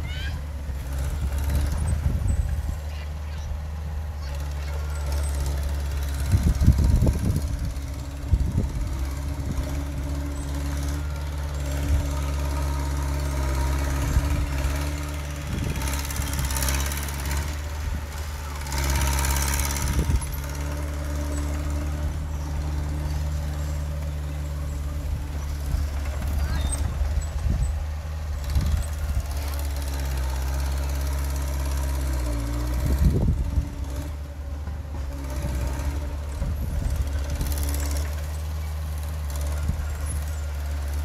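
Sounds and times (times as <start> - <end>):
bulldozer diesel engine running: 0.0 - 41.0.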